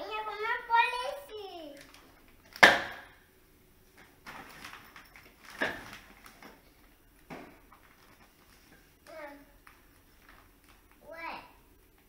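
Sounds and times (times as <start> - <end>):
plastic bag rustling: 4.0 - 11.1.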